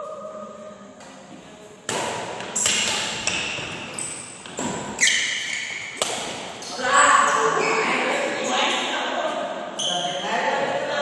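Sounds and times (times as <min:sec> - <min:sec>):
rackets hitting shuttlecock: 0:01.8 - 0:07.4.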